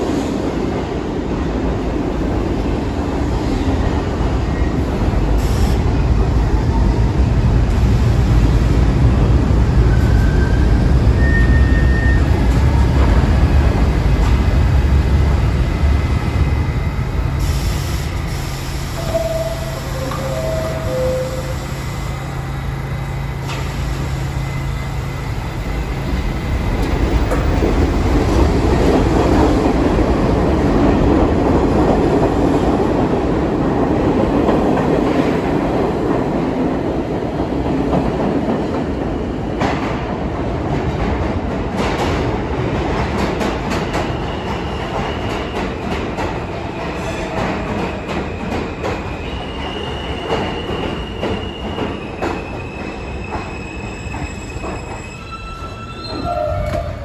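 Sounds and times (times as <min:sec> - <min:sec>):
subway train rumble: 0:00.0 - 0:57.0
faint high wheel squeal: 0:49.2 - 0:56.7.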